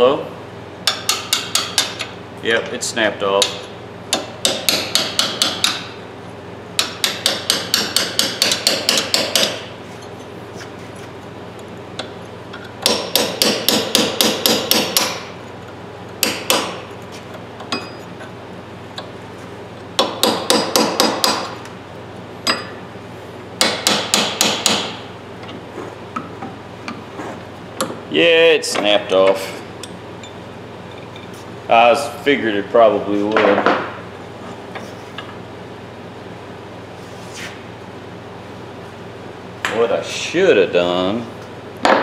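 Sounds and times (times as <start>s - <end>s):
hammer tapping a steel punch: 0.8s - 2.1s, 3.4s - 5.9s, 6.8s - 9.6s, 12.8s - 15.2s, 16.2s - 16.8s, 20.0s - 21.6s, 23.6s - 25.0s.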